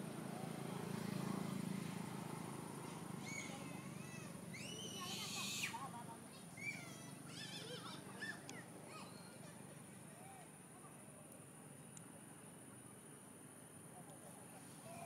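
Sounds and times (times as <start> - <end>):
high-pitched animal calls: 3.2 - 5.8.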